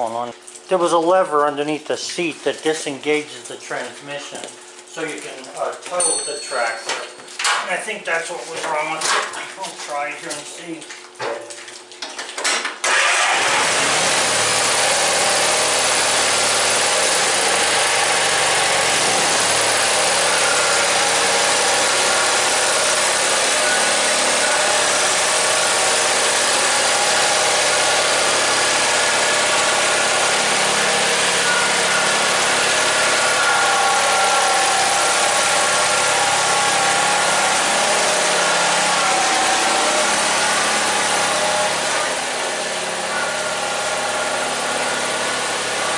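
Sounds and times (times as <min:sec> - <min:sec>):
garden tractor engine running: 0:12.8 - 0:45.9.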